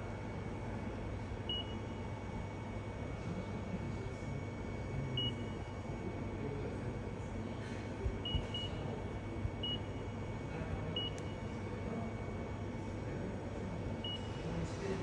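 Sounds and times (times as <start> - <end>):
touchscreen beeps: 11.0 - 11.3.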